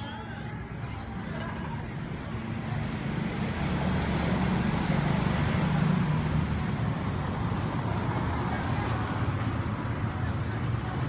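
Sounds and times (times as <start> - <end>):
roadway rumble: 0.0 - 11.0.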